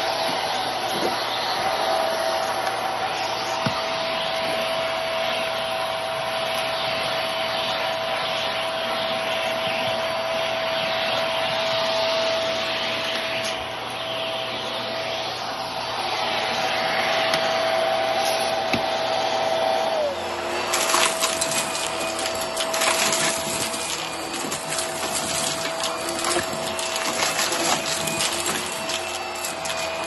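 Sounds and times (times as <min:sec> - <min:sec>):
handheld vacuum motor whine: 0:00.0 - 0:30.0.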